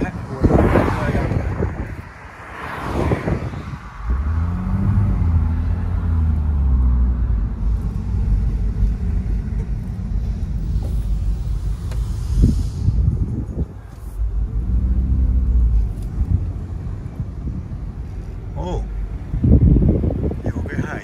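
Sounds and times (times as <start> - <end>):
road rumble: 0.0 - 21.0
car engine running: 4.0 - 12.5.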